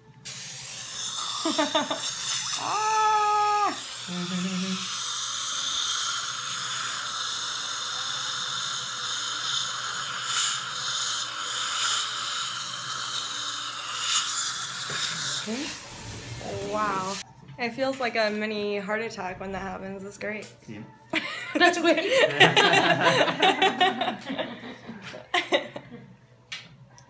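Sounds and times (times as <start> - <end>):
saliva ejector hissing: 0.2 - 17.2.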